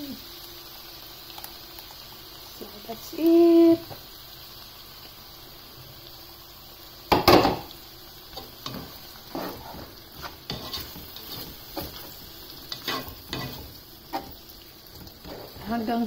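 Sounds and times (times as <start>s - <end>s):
faint sizzle: 0.0s - 16.0s
spatula scraping a pot: 8.7s - 12.1s, 12.7s - 14.4s.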